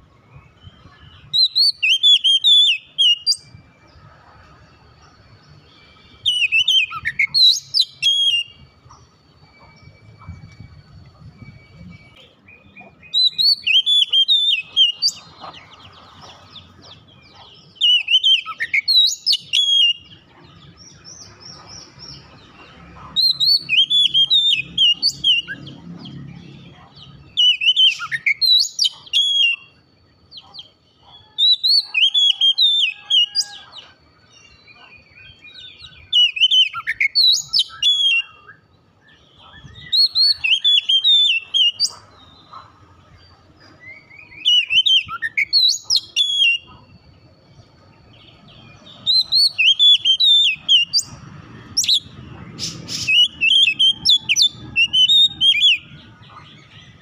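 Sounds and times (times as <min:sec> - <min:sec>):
bird singing whistled phrases: 0:00.4 - 0:03.5, 0:05.8 - 0:08.8, 0:11.4 - 0:15.3, 0:17.4 - 0:20.2, 0:23.2 - 0:26.6, 0:27.2 - 0:29.8, 0:30.5 - 0:33.8, 0:34.8 - 0:42.1, 0:43.9 - 0:46.8, 0:48.9 - 0:51.1, 0:51.8 - 0:56.0.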